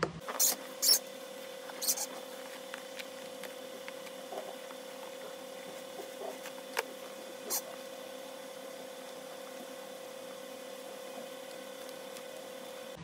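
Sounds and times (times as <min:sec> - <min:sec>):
faint hum: 0:00.0 - 0:13.0
rustling handling noises: 0:01.3 - 0:07.9.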